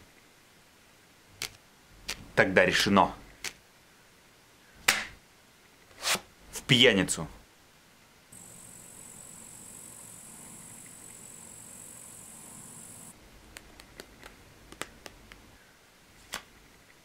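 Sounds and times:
faint steady hiss: 0:00.0 - 0:17.0
playing cards dealt on table: 0:05.9 - 0:06.2.

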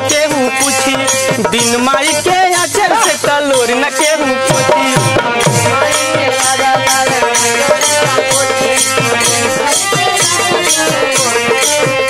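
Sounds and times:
steady drum beat: 0:00.0 - 0:12.0.

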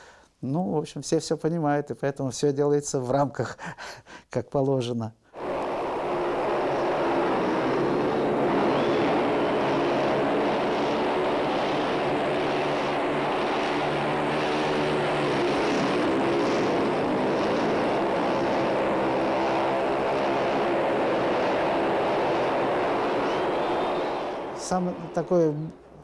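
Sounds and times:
motorcycles racing engine drone: 0:05.4 - 0:26.0.

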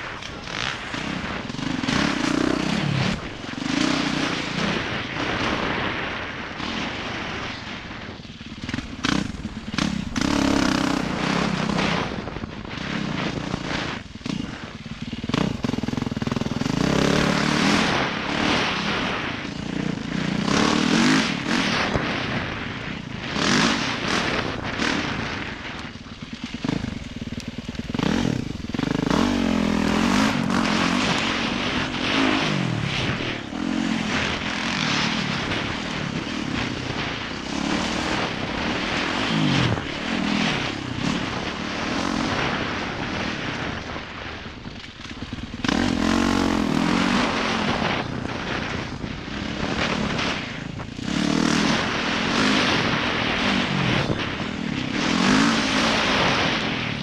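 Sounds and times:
dirt bike engine revving: 0:00.0 - 0:57.0
wind rushing over microphone: 0:00.0 - 0:57.0.

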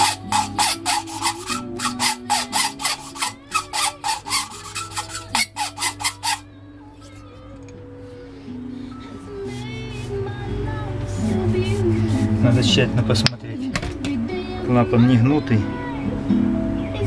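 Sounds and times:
gritty rasping scrape of valve lapping: 0:00.0 - 0:06.4.

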